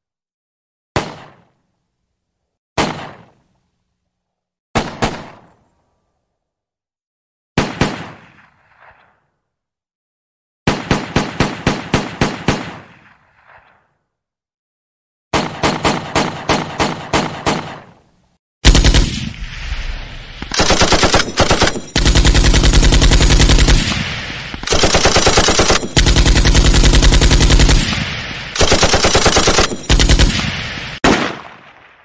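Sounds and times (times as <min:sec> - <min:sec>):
single gunshots: 0:01.0 - 0:01.5, 0:02.8 - 0:03.4, 0:04.8 - 0:05.6, 0:23.4 - 0:26.2, 0:26.9 - 0:32.0
automatic gunfire bursts: 0:15.3 - 0:17.9, 0:18.6 - 0:19.3, 0:20.4 - 0:31.6.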